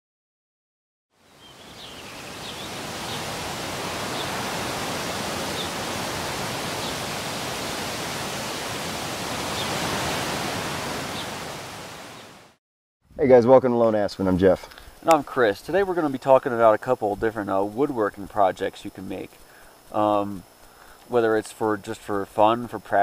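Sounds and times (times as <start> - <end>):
steady rushing noise: 1.8 - 12.5.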